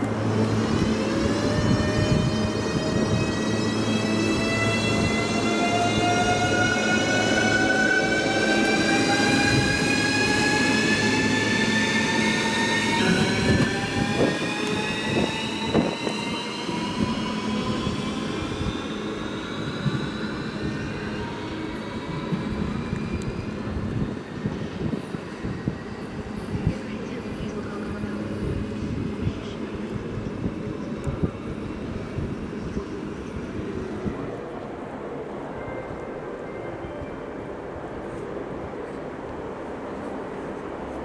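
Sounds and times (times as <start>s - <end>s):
train rumble: 0.0s - 41.0s
train motor whine rising: 0.3s - 23.4s.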